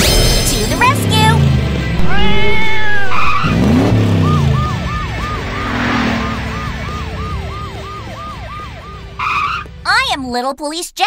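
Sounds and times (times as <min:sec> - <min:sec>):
motorbike engine revving: 0:00.8 - 0:09.2
cartoon pitched swoop: 0:02.0 - 0:08.7
police siren wailing: 0:02.0 - 0:09.7.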